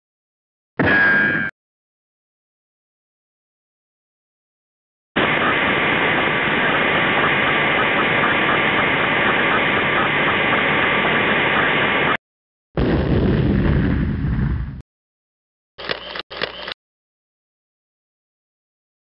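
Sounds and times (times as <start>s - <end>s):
jet engine roar with whine: 5.2s - 12.2s
rocket launch rumble: 5.2s - 12.2s, 12.8s - 14.8s.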